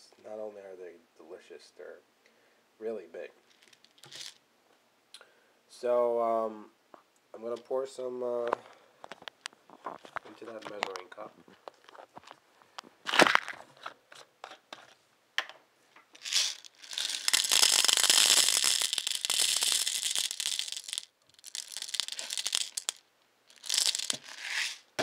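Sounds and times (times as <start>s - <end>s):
popcorn kernels poured into cup: 16.2s - 24.8s.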